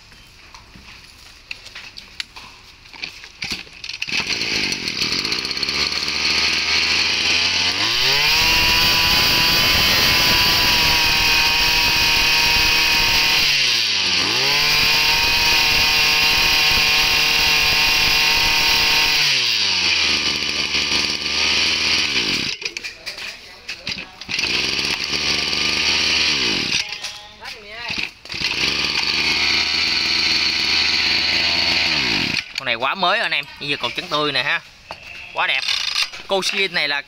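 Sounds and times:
small two-stroke engine revving: 4.0 - 22.6, 23.9 - 27.0, 27.9 - 32.6.

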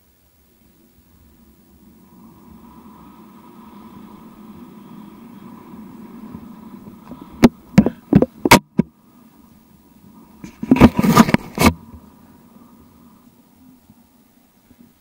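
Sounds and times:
skis sliding over snow: 0.2 - 15.0
sharp knocks: 7.4 - 8.9
loud rough scraping: 10.4 - 12.0.

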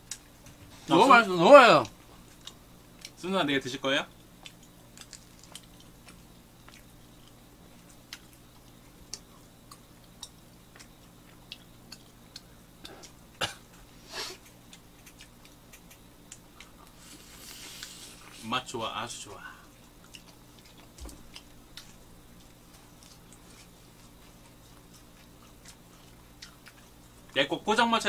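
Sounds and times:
people chewing: 1.8 - 3.2, 4.2 - 18.4, 19.5 - 27.4
quiet mouth clicks: 14.4 - 16.4.

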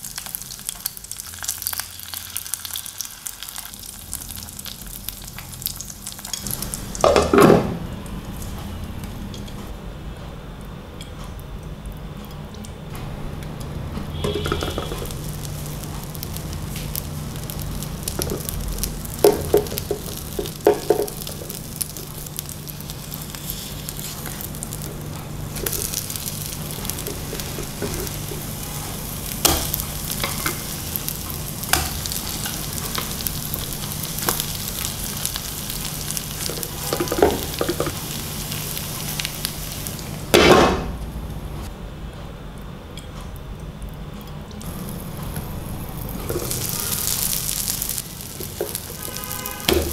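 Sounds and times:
egg sizzling in oil: 0.0 - 7.6, 14.1 - 40.4, 44.6 - 49.9.

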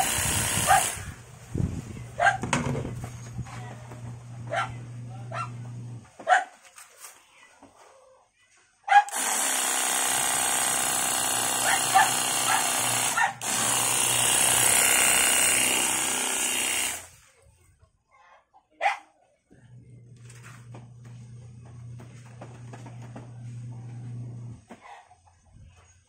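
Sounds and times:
pressure washer pump whine: 0.0 - 1.1.

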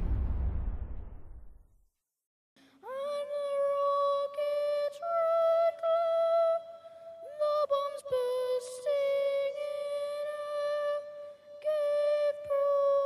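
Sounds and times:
high voice singing slow tune: 2.7 - 13.0.

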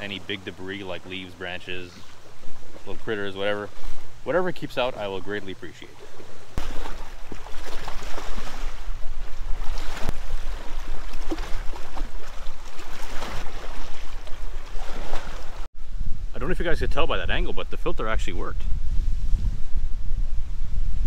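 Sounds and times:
waves splashing against rocks: 6.6 - 15.7
wind rumble on microphone: 7.6 - 21.0.

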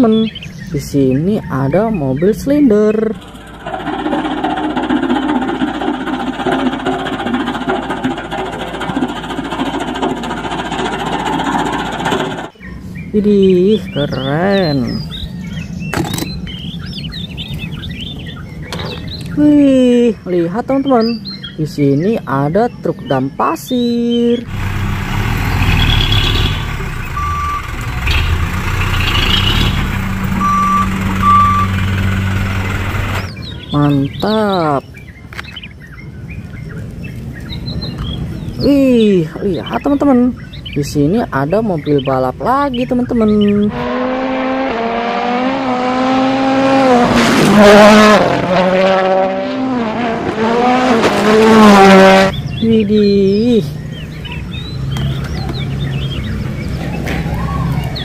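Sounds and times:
road roller diesel engine running: 0.0 - 19.4, 24.4 - 34.3
roller compacting crushed stone: 3.2 - 12.5
reversing alarm beeps: 25.9 - 28.3, 30.4 - 31.9.

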